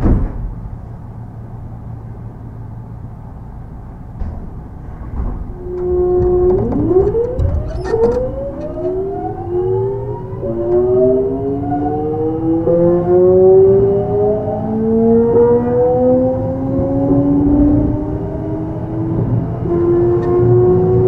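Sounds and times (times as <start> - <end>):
train running rumble: 0.0 - 12.4, 17.4 - 21.0
train inverter whining: 0.7 - 21.0.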